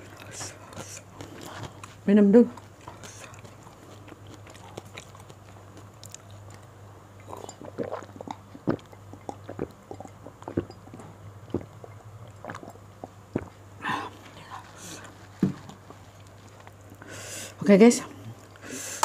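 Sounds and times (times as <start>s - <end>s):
person gulping a drink: 7.2s - 14.2s.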